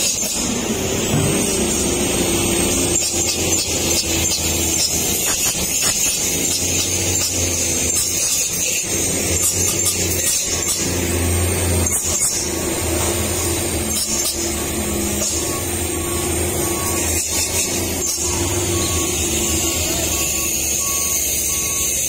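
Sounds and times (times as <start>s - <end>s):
truck diesel engines droning: 0.0s - 22.0s.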